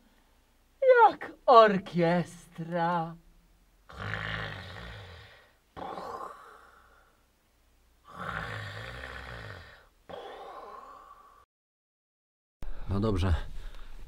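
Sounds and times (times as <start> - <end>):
person snoring: 3.9 - 7.2, 8.0 - 11.5
breathy exhale: 6.2 - 7.2.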